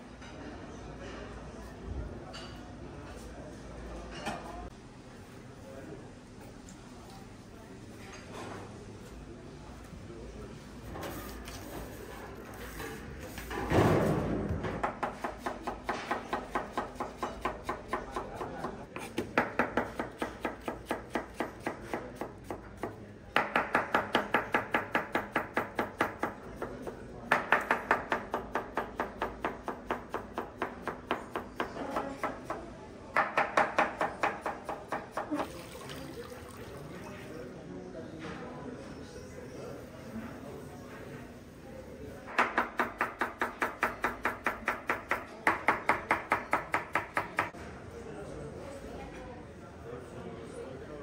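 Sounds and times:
knife chopping on cutting board: 14.8 - 26.7.

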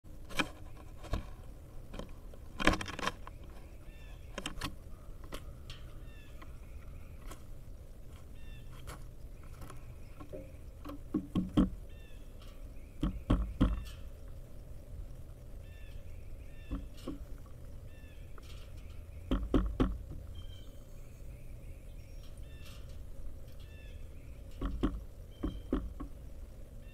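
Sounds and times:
small birds chirping: 3.1 - 26.9
woodpecker pecking on wood: 9.4 - 14.1, 16.6 - 17.6, 18.4 - 20.3, 24.4 - 26.2.

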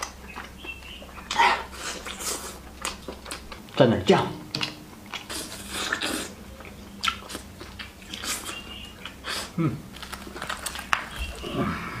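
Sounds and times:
crunchy chewing of fried chicken: 0.0 - 3.8, 4.6 - 12.0.

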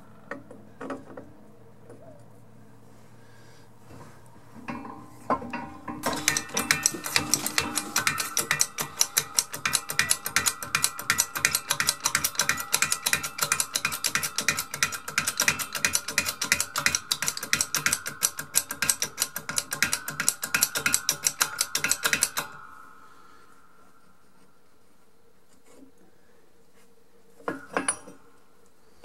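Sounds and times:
ratchet clicking: 5.9 - 22.8.

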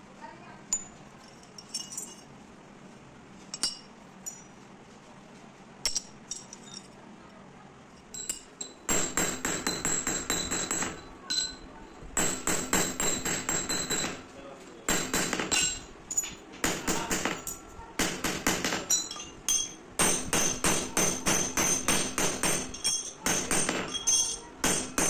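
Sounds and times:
metallic clinks of steel parts: 0.7 - 2.3, 3.5 - 4.6, 5.8 - 7.0, 8.0 - 8.9, 10.4 - 11.7, 15.4 - 16.4, 18.8 - 19.8, 22.6 - 24.6
hammer striking steel rod: 12.2 - 14.2, 16.6 - 25.0.

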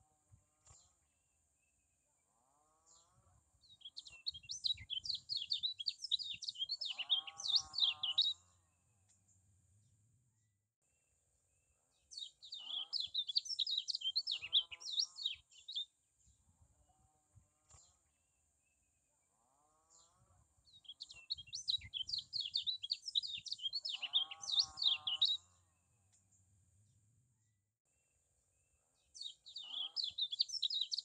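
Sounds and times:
bird chattering song: 3.7 - 8.4, 12.1 - 15.9, 20.7 - 25.5, 29.2 - 31.0.

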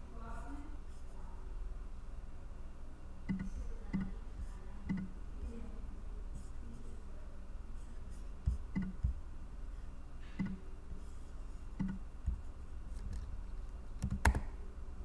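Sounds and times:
faint room hiss: 0.0 - 15.0
computer clicks: 3.2 - 5.2, 8.7 - 9.2, 10.4 - 10.6, 11.8 - 12.4, 14.0 - 14.5.

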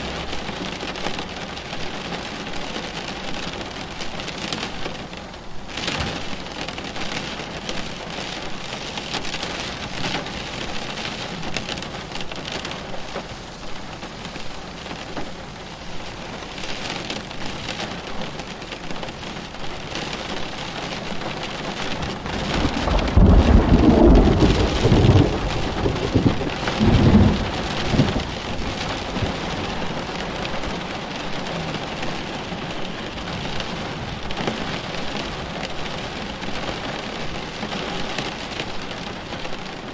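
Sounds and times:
steady rain falling: 0.0 - 39.9
low roll of thunder: 22.1 - 30.3.

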